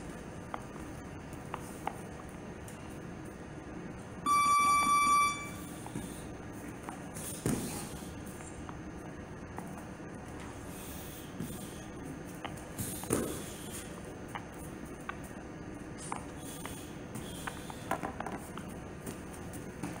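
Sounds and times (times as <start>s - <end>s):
electronic timer beep: 4.2s - 5.7s.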